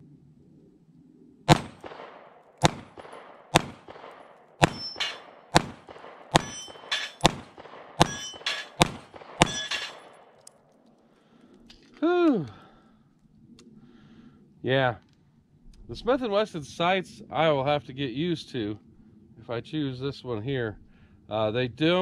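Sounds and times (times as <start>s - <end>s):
pistol shots: 1.5s - 10.4s
steel targets clanging: 4.6s - 5.4s, 6.3s - 7.4s, 8.0s - 10.3s.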